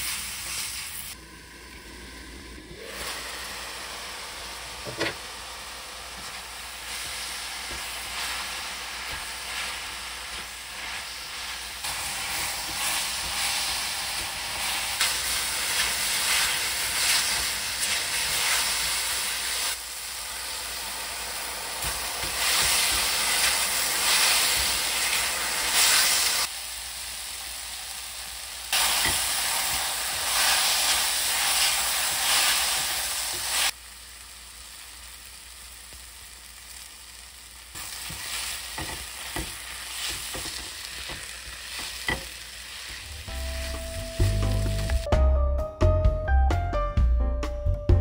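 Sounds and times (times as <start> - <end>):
mushrooms sizzling in a wok: 0.0 - 45.1
spatula scraping a wok: 6.2 - 19.1.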